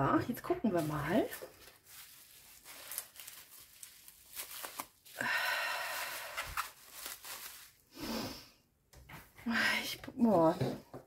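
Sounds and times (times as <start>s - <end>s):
wrapping rustling: 0.6s - 8.0s
packaging tearing: 1.3s - 5.2s, 5.9s - 7.8s.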